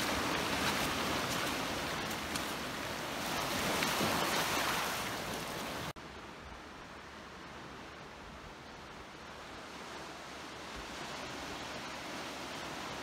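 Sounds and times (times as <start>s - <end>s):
waves washing over rocks: 0.0s - 5.9s.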